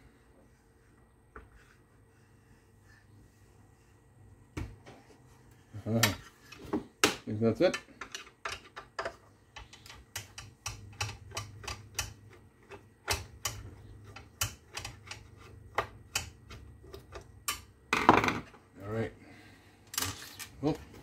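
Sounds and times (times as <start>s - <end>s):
low steady hum: 0.0s - 21.0s
small metal tools clicking and tapping: 7.6s - 17.7s.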